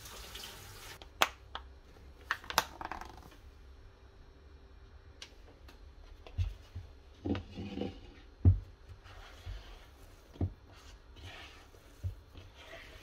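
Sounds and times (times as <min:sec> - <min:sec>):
hands kneading dough: 0:08.2 - 0:13.0.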